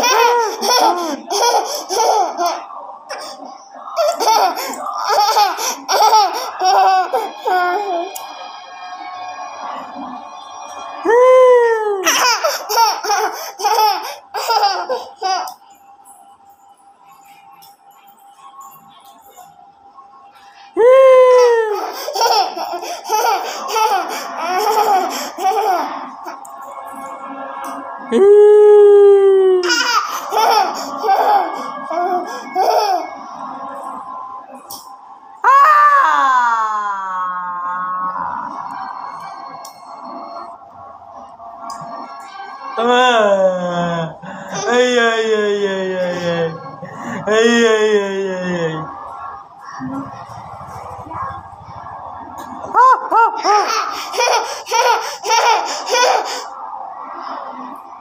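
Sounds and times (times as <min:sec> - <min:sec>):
child laughing loudly: 0:04.0 - 0:07.9, 0:21.3 - 0:25.9, 0:29.6 - 0:33.1, 0:52.8 - 0:56.5.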